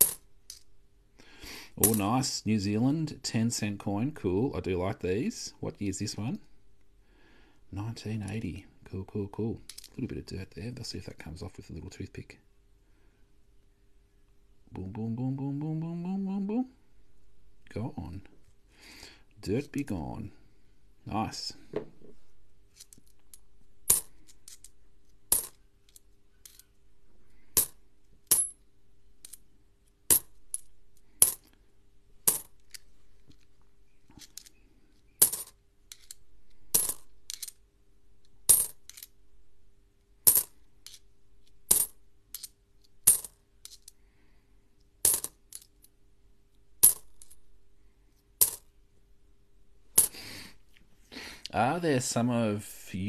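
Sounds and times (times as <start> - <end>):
coins clinking onto a heap: 0.0 - 0.6, 1.8 - 2.1, 25.3 - 25.6, 32.3 - 32.5, 35.2 - 36.2, 36.8 - 37.6, 38.5 - 39.1, 40.2 - 41.0, 41.7 - 43.9, 45.0 - 45.7, 46.8 - 47.4, 48.4 - 48.7.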